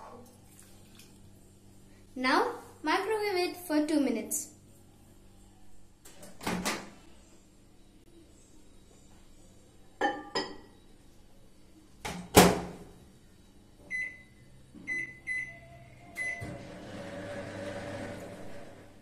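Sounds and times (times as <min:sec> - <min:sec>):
microwave humming: 0:09.8 - 0:19.0.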